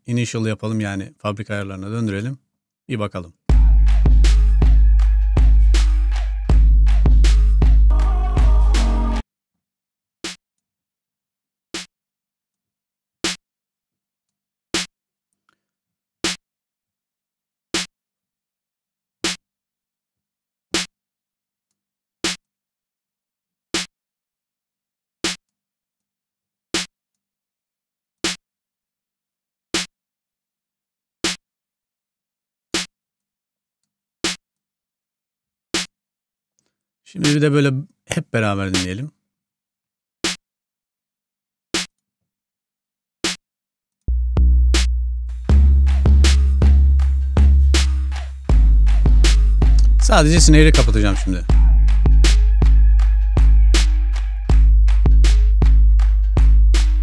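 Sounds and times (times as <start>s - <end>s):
snare drum hits: 45.9s - 46.6s, 47.8s - 51.6s.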